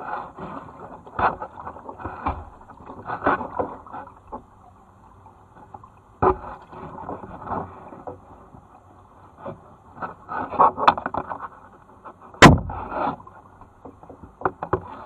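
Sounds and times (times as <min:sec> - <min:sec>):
paddle splashing and dripping: 0:00.5 - 0:15.0.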